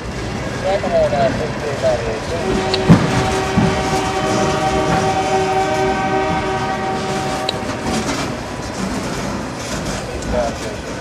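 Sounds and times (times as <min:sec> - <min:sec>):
freight train rolling past: 0:00.0 - 0:11.0
locomotive horn chord: 0:02.4 - 0:08.2.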